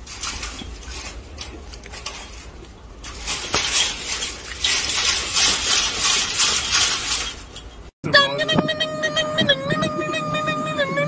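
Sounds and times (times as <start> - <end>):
chain-link fence rattling: 0.0 - 7.9.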